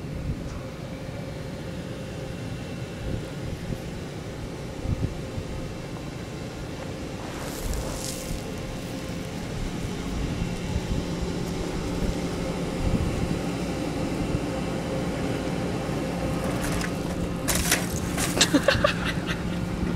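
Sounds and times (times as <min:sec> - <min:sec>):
faint hum: 0:00.0 - 0:19.9
low outdoor rumble: 0:00.0 - 0:19.9
bicycle tyres crunching on gravel: 0:06.8 - 0:09.6, 0:16.3 - 0:18.7.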